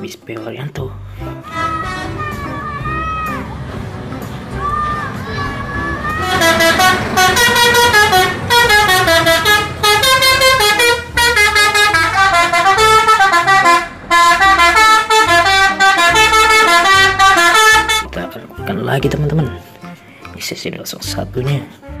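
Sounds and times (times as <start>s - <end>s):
musical air horn melody: 1.4s - 3.4s, 6.2s - 18.1s.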